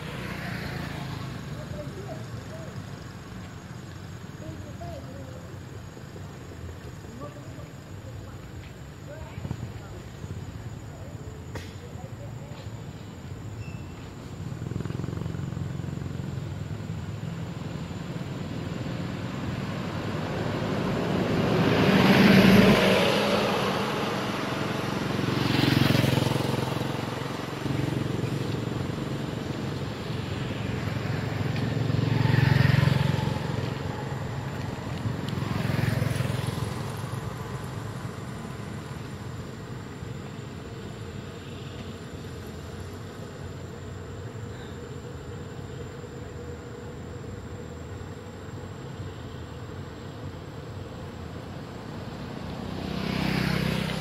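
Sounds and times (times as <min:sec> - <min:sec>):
vehicles passing on road: 0:00.0 - 0:54.0.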